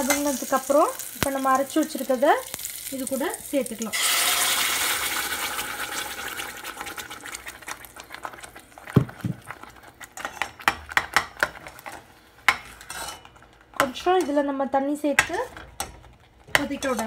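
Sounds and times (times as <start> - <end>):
paste sizzling in hot oil: 0.0 - 8.7
metal spoon scraping a pan: 10.2 - 14.5, 15.2 - 17.0.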